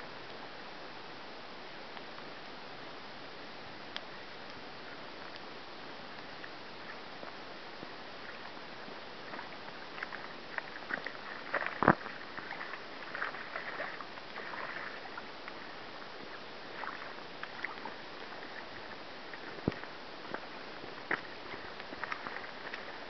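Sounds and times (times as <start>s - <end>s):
river noise hiss: 0.0s - 23.0s
wading splashes: 6.4s - 23.0s
fish thrashing and splashing: 9.3s - 15.3s.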